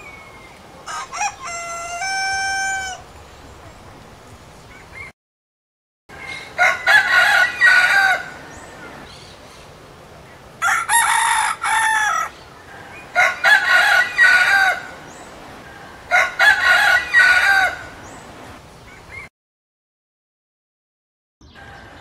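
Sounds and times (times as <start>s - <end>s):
rooster crowing: 0.8s - 3.0s, 6.4s - 8.6s, 10.6s - 15.0s, 15.7s - 18.0s, 21.5s - 22.0s.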